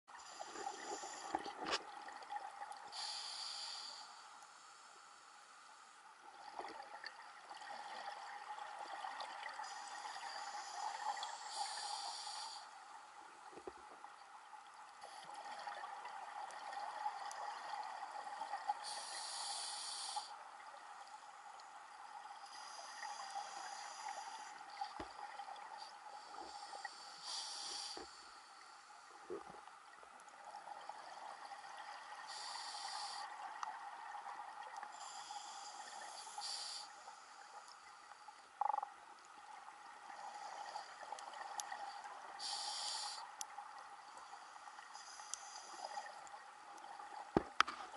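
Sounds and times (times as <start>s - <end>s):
diver breathing through regulator: 2.9s - 4.2s, 9.6s - 12.7s, 18.8s - 20.3s, 26.2s - 28.4s, 32.3s - 33.3s, 42.4s - 43.2s.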